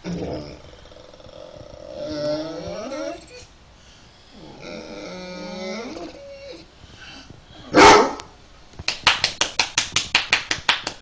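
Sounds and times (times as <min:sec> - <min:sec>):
dog whining and groaning: 0:00.0 - 0:03.6, 0:04.3 - 0:06.7
dog barking: 0:07.7 - 0:08.3.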